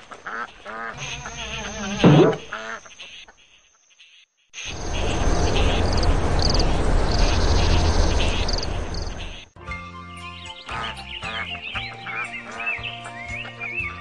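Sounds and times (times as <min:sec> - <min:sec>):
insect chirps: 0:00.3 - 0:09.6.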